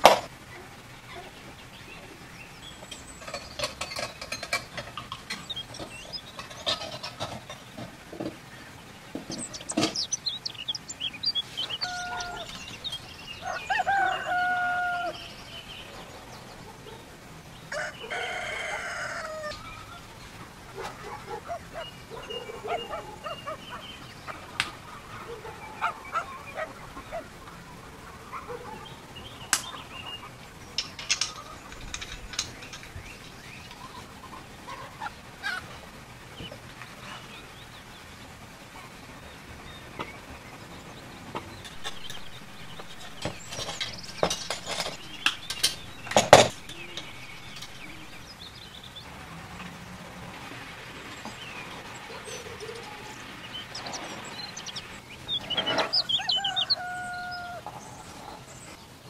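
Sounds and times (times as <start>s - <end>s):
birds chirping: 0.0s - 59.0s
rooster crowing: 11.6s - 15.8s, 17.7s - 20.1s, 41.8s - 48.2s, 55.7s - 58.1s.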